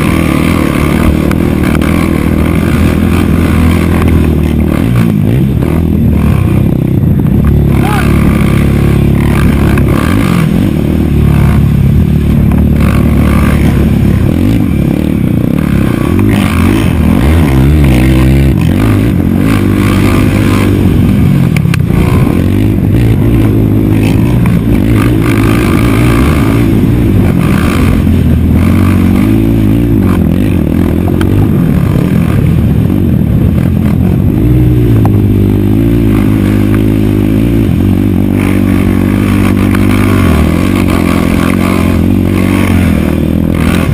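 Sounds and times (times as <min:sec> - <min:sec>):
quad engine revving: 0:00.0 - 0:43.9.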